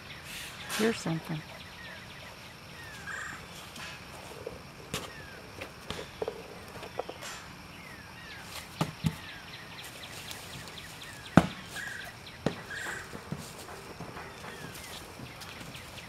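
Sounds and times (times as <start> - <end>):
small birds chirping: 0.0 - 16.0
donkey hooves on dry leaves: 2.6 - 7.2, 8.2 - 16.0
ball knocking: 4.2 - 7.2, 12.4 - 15.8.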